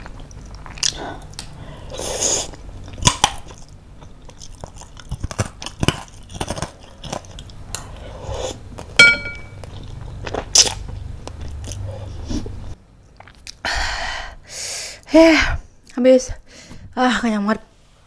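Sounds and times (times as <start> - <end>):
wet chewing and mouth clicks: 0.0 - 1.6, 2.4 - 7.8, 13.0 - 13.6.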